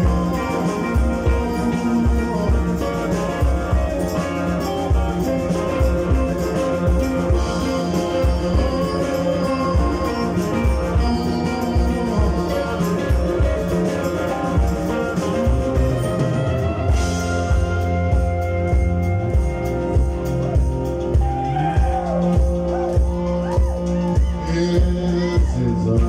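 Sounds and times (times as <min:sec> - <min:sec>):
blues band playing: 0:00.0 - 0:26.0.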